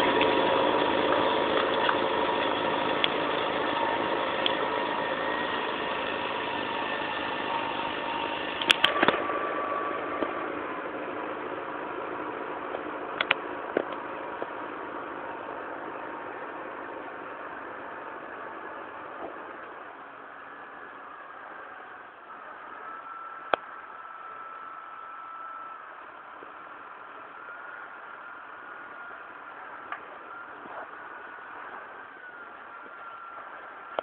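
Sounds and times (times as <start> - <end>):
tractor engine under load: 0.0 - 25.4
sharp clicks: 8.6 - 9.2.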